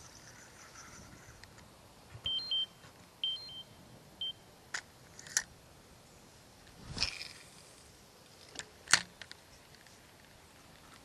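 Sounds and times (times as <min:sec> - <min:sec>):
short electronic beeps: 0:02.3 - 0:04.4.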